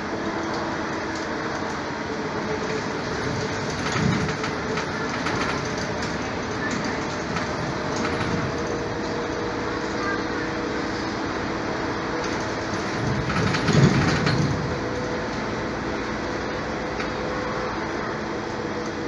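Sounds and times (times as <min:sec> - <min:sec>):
light clicks and rattles: 0:02.7 - 0:09.2.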